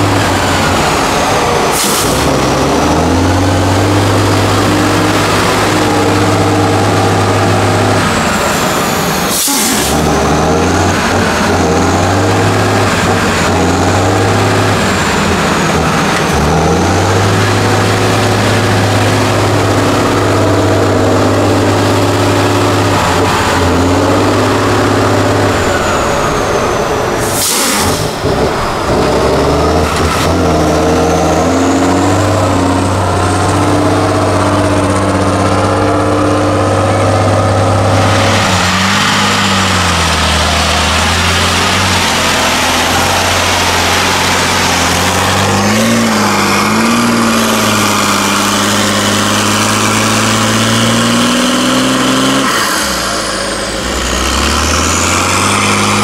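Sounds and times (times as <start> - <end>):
diesel truck engine revving: 0.0 - 56.0
short sharp hisses: 27.2 - 28.1.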